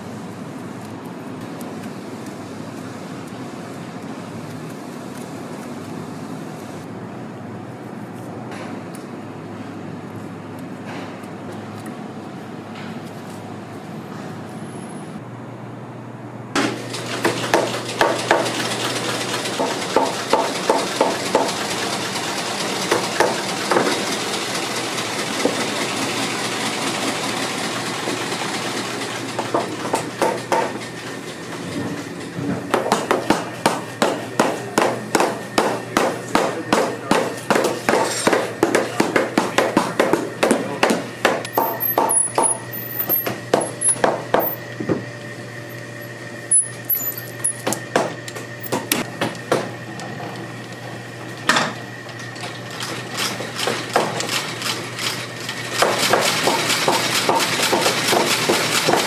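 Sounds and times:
hammer tapping sole: 0:32.7 - 0:42.6.

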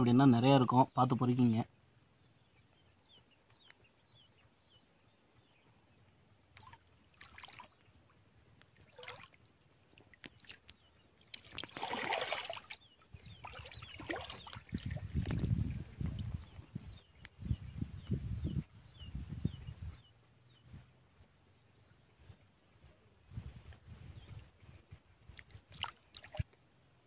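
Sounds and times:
water sloshing and splashing: 0:06.5 - 0:16.7, 0:25.3 - 0:26.6.

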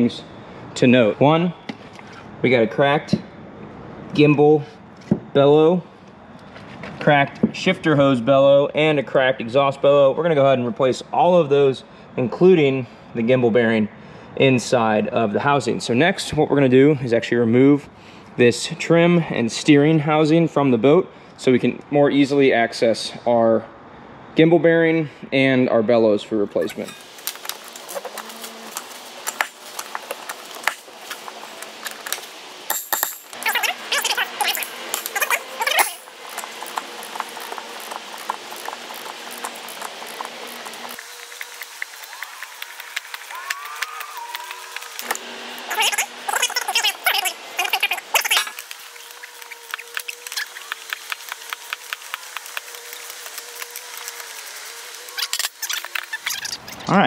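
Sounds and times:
power tool whining: 0:26.7 - 0:32.3, 0:33.3 - 0:56.5
metal tools clinking on metal: 0:31.8 - 0:33.7, 0:34.5 - 0:36.8.

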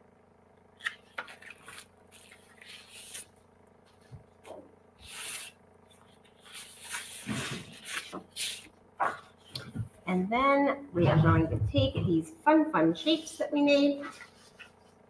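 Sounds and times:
cardstock rustling and sliding: 0:00.8 - 0:04.3, 0:06.4 - 0:09.2.

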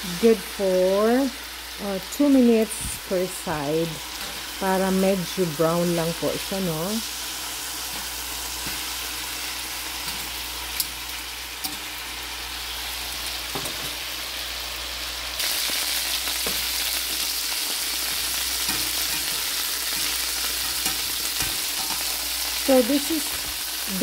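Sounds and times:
chicken sizzling in oil: 0:00.0 - 0:24.0
metal tongs clicking against pan: 0:10.0 - 0:11.0, 0:11.6 - 0:11.9, 0:18.6 - 0:22.2.

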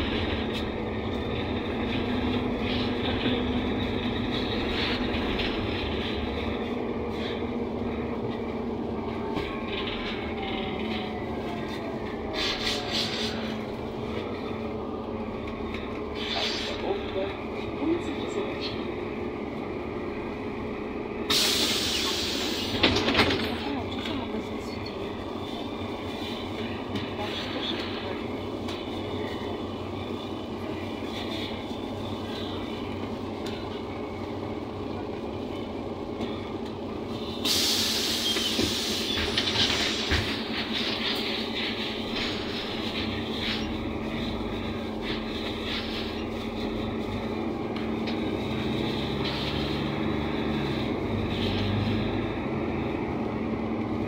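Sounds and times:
bus diesel engine droning: 0:00.0 - 0:54.0
road and body rumble: 0:00.0 - 0:54.0
loud air hiss: 0:21.3 - 0:22.8, 0:37.4 - 0:39.2.

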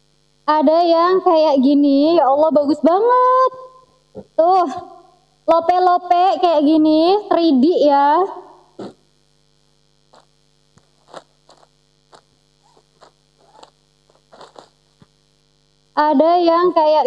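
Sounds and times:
low mains hum: 0:00.0 - 0:17.0
footsteps on tile floor: 0:10.1 - 0:14.8
plastic bag rustling: 0:10.8 - 0:15.0.

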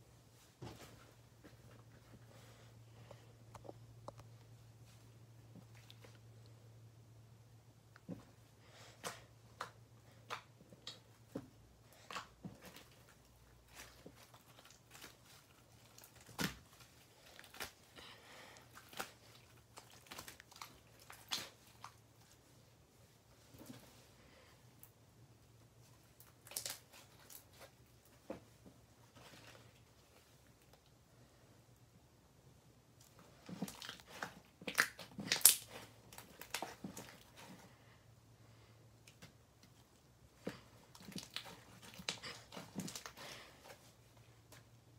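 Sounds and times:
slime crackling and popping: 0:26.2 - 0:27.4, 0:33.6 - 0:37.2.

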